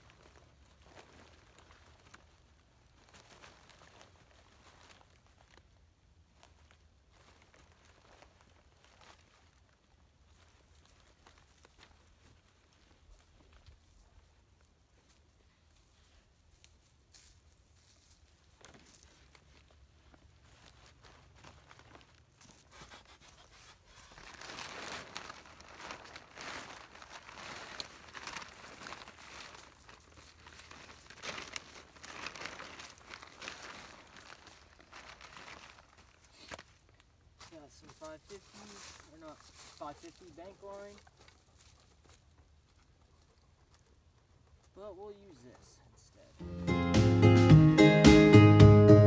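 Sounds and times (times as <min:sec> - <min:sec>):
plastic tarp crinkling: 0:00.0 - 0:14.2, 0:17.8 - 0:42.4.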